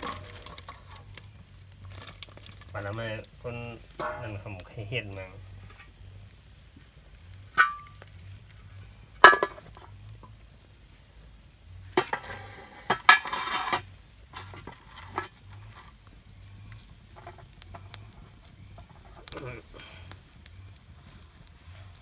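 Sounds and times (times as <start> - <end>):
clattering and scraping: 0.0 - 1.2, 4.0 - 4.5, 11.9 - 16.0
knocks and clinks on metal pot: 9.2 - 9.8.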